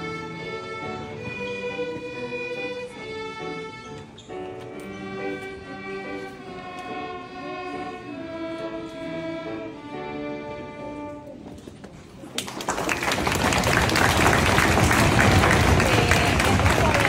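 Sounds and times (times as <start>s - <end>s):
string orchestra playing chords: 0.0s - 11.6s
audience applause: 12.3s - 17.0s.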